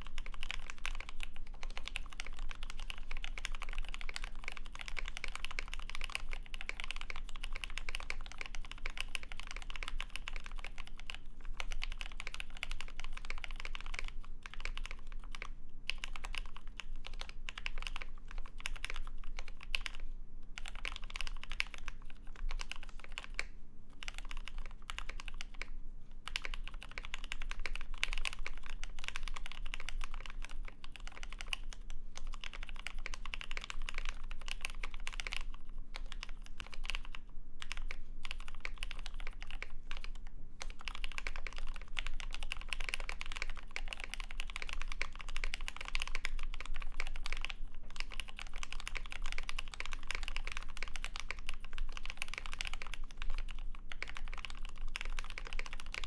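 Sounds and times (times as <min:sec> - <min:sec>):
typing on mechanical keyboard: 0:00.0 - 0:56.0.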